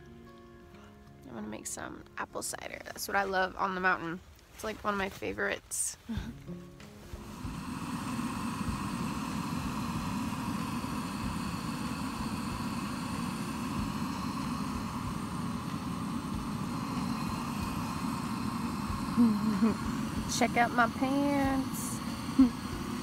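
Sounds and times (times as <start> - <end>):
gas camping stove burner hissing: 6.9 - 23.0.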